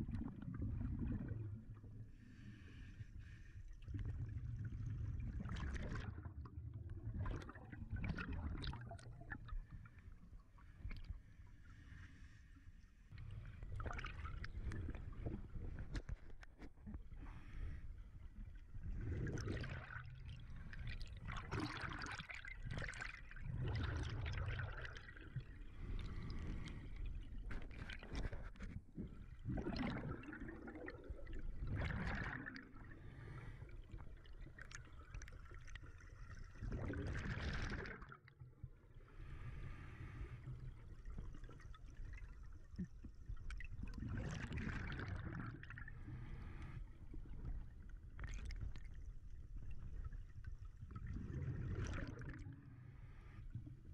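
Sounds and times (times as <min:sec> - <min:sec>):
air bubbling underwater: 0:29.5 - 0:32.7.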